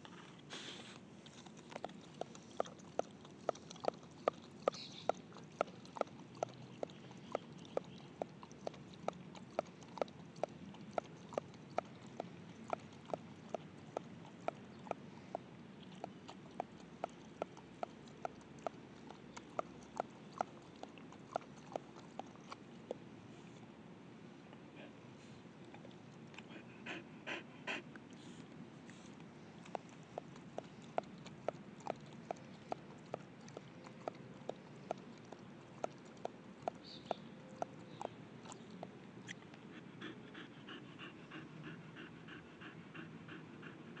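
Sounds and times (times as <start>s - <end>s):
dog lapping water: 1.0s - 23.0s, 25.6s - 28.2s, 29.4s - 44.0s
dog panting rapidly: 26.4s - 38.6s, 39.6s - 44.0s.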